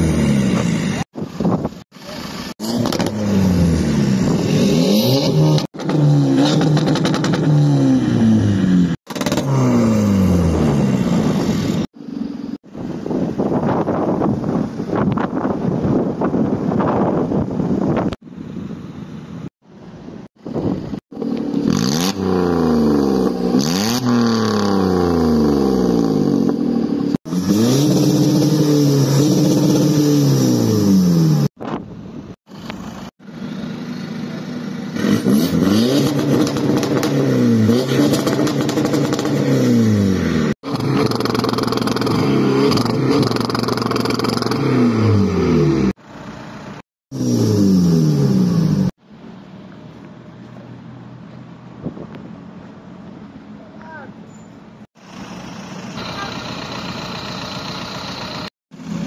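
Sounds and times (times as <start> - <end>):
car engines revving: 0.0 - 13.0, 20.6 - 49.0.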